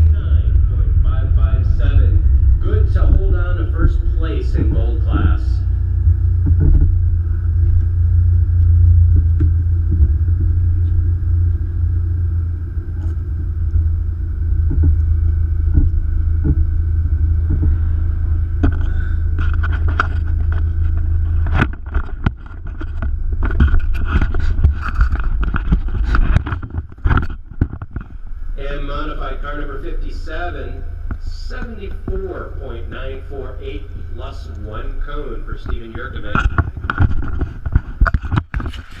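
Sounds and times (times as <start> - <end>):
car engine idling: 0.0 - 39.0
rustling noise: 13.0 - 28.5, 36.1 - 39.0.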